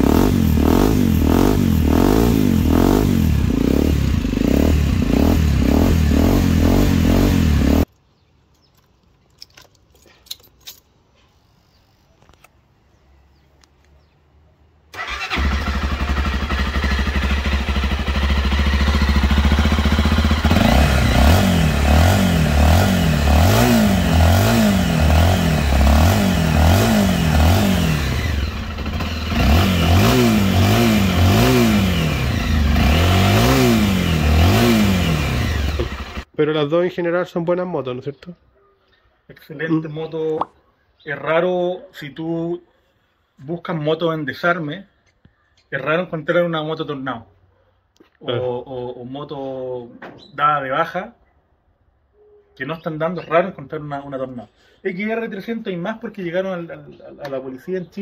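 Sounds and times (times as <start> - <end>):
motorcycle engine running: 0.0 - 7.8, 15.0 - 36.3
motorcycle engine revving: 0.0 - 7.9, 15.0 - 36.3.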